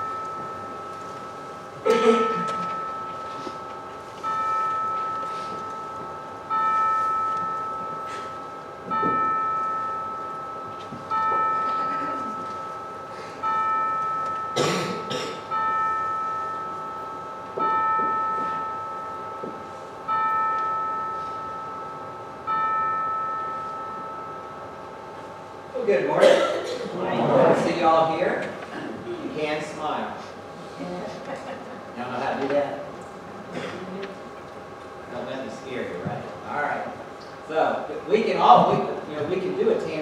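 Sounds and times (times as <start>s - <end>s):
church bell tolling: 0.0s - 28.8s.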